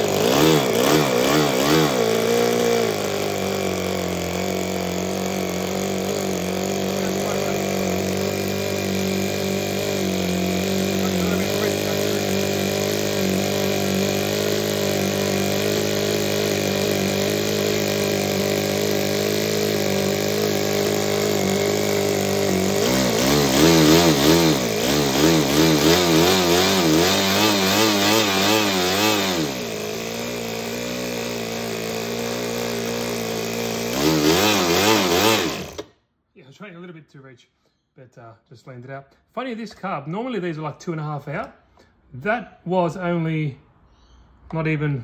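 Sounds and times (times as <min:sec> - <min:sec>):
model engine revving: 0:00.0 - 0:35.9.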